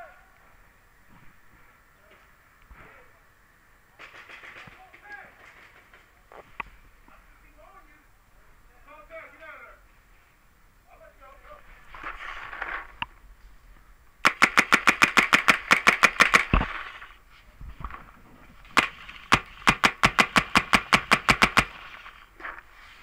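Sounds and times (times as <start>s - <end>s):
paintball marker rapid firing: 14.2s - 17.0s, 18.8s - 22.1s.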